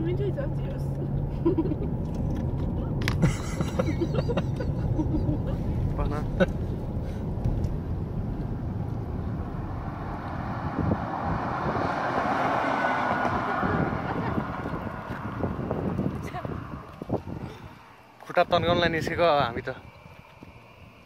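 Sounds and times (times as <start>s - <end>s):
car road rumble: 0.0s - 21.0s
rushing noise: 6.9s - 21.0s.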